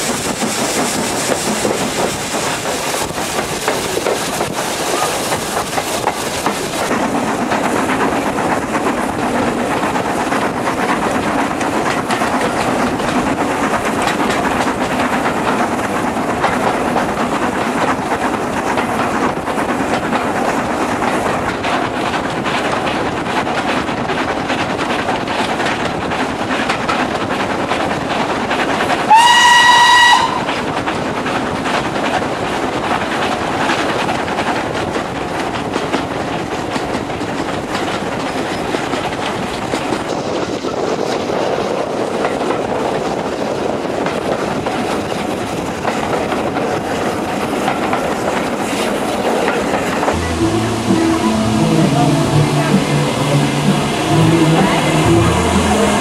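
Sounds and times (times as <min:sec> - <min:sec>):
train rumbling on rails: 0:00.0 - 0:56.0
steam locomotive whistle: 0:29.1 - 0:30.5.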